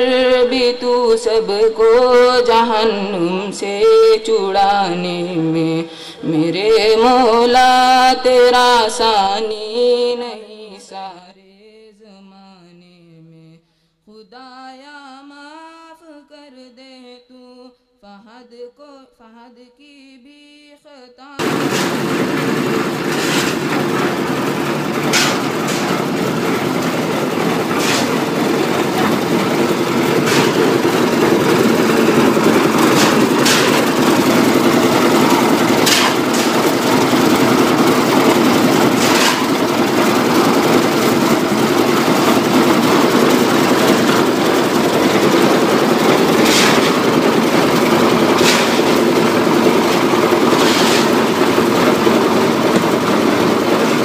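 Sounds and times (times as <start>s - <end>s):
sharp knocks: 21.4s - 39.6s
concrete mixer running: 21.4s - 54.0s.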